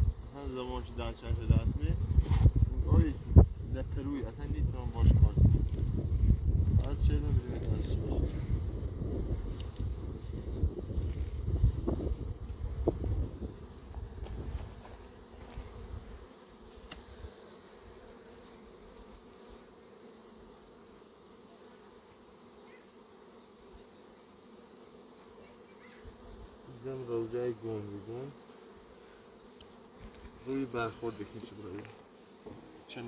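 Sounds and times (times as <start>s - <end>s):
bees humming: 8.0s - 33.0s.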